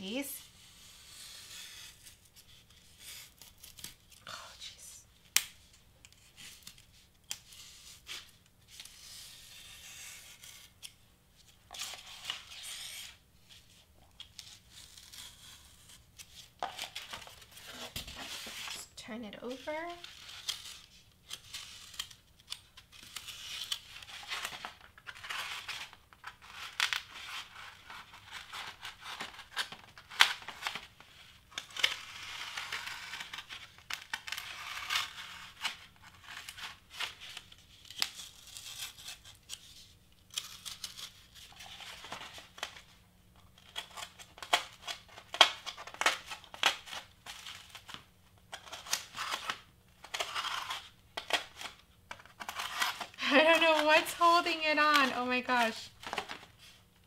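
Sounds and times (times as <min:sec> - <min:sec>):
knife blade cutting foam board: 0:07.3 - 0:10.9.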